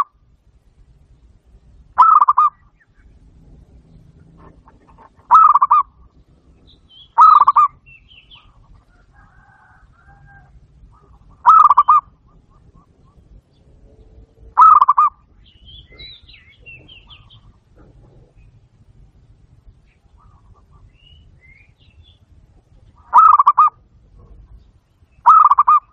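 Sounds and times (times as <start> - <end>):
dove cooing: 2.0 - 2.6, 3.7 - 13.5, 14.2 - 15.2, 15.8 - 18.9, 23.0 - 24.5, 25.2 - 25.9.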